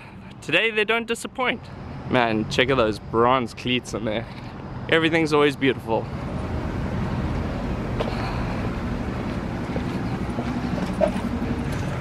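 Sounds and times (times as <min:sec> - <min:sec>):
low mechanical hum: 0:06.0 - 0:12.0.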